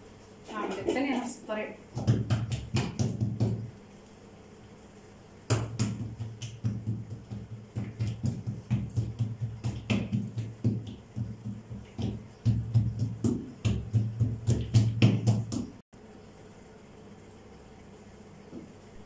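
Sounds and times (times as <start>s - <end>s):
hands patting dough: 1.9s - 3.8s, 5.4s - 15.8s.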